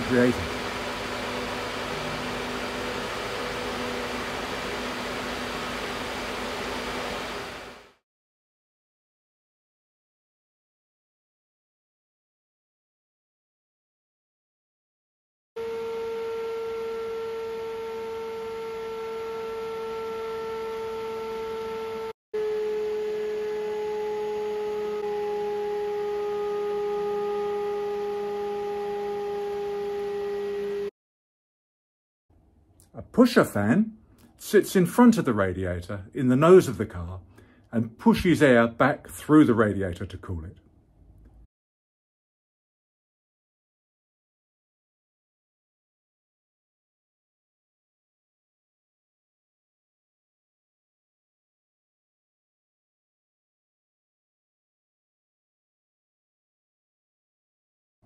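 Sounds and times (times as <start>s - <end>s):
faint motor hum: 0.0s - 8.0s, 15.6s - 30.9s
fan air rushing: 0.0s - 8.0s.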